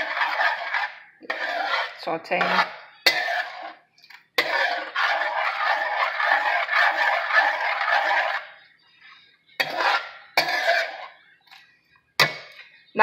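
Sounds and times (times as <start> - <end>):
metal ladle scraping pot: 0.0 - 13.0.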